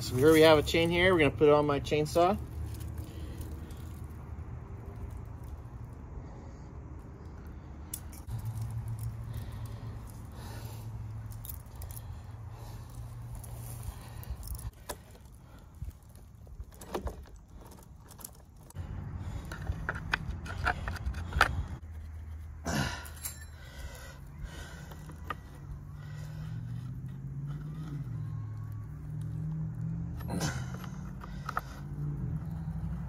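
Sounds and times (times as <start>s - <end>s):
saw chain jangling and clicking: 7.9s - 18.8s, 23.0s - 24.3s.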